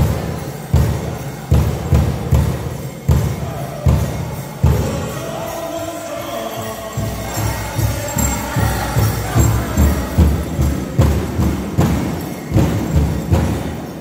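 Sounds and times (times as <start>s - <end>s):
big drum beating: 0.0s - 5.2s, 6.9s - 14.0s
jingling bells: 0.0s - 14.0s
voices singing: 0.0s - 14.0s.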